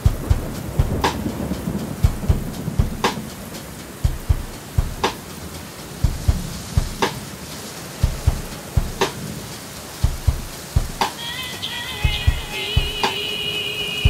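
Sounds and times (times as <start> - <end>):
kick drum thumps: 0.0 - 1.2, 2.0 - 3.2, 4.0 - 5.2, 6.0 - 7.1, 8.0 - 9.1, 10.0 - 11.1, 12.0 - 13.0
snare-like drum hit: 0.0 - 11.2
steady rain: 0.0 - 14.0.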